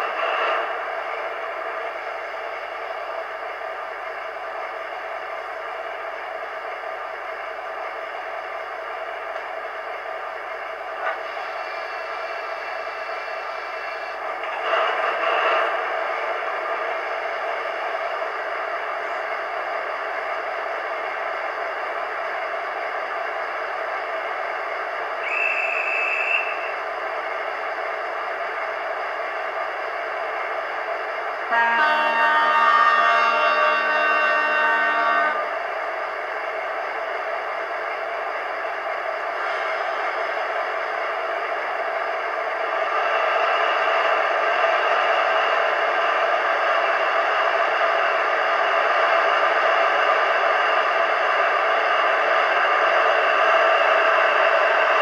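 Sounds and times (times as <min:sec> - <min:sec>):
model locomotive diesel engine idling: 0:00.0 - 0:55.0
locomotive horn chord: 0:31.5 - 0:35.5.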